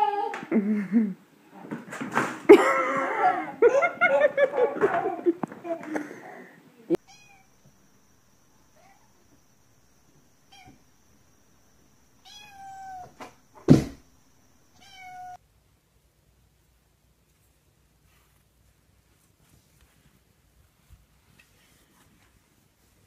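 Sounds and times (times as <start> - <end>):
kitten meowing: 7.0 - 7.8, 10.4 - 11.1, 12.2 - 13.5, 14.7 - 15.4
sharp knock: 13.1 - 14.1.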